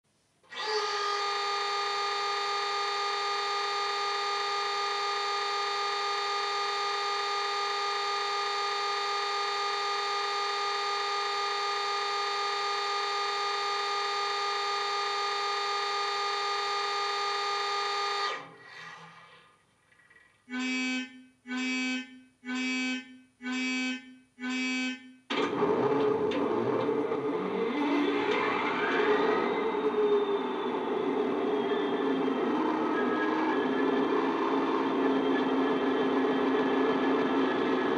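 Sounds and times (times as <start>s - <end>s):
evenly spaced beeps: 20.5s - 25.2s.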